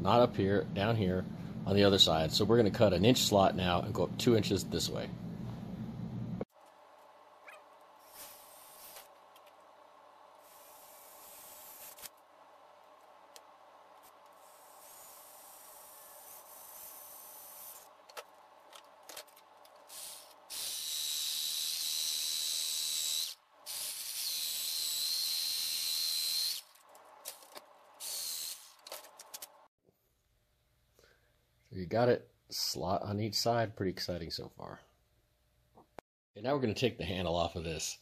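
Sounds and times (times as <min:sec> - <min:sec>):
faint hum: 0:00.0 - 0:20.0
jigsaw cutting plastic: 0:19.0 - 0:29.5.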